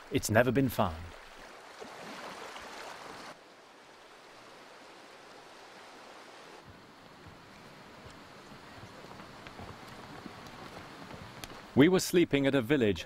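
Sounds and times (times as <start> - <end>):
mountain stream rushing: 0.0 - 12.9
small waves lapping on shingle: 1.0 - 3.4.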